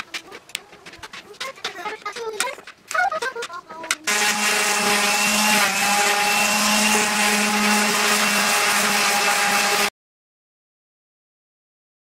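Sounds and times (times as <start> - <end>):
orbital sander sanding wood: 3.2 - 9.9.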